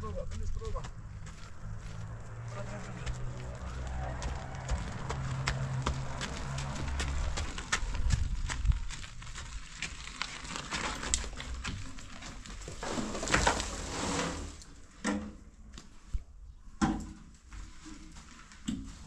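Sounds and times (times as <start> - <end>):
wheelbarrow rattling over gravel: 3.6 - 14.8
soil pouring out: 3.9 - 14.8.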